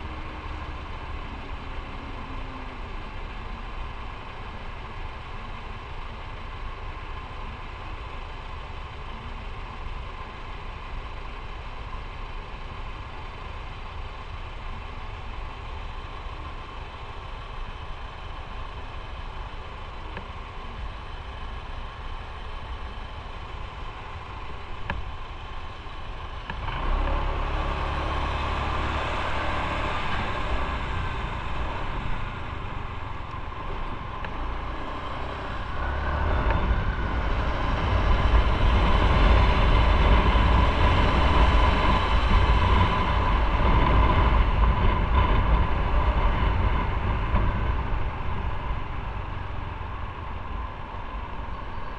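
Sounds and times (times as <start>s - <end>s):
motorcycle engine: 8.4s - 51.9s
rushing wind noise: 27.9s - 51.8s.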